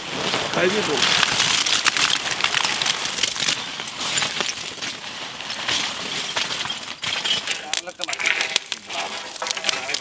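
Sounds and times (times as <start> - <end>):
charcoal clattering into pit: 5.7 - 10.0.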